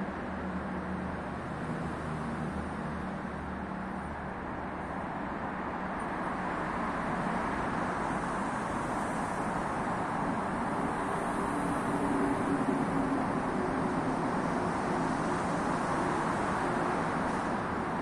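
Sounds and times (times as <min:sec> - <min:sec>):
road traffic noise: 0:00.0 - 0:18.0.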